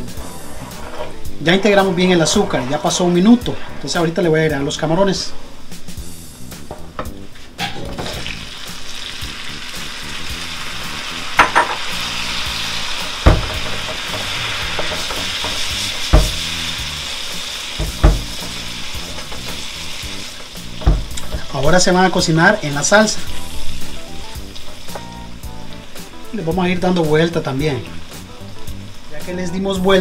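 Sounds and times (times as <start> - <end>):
sauce sizzling and bubbling: 5.4 - 30.0
wooden spoon knocking on pan: 11.4 - 11.9, 13.1 - 16.6, 17.8 - 18.6, 20.8 - 21.5.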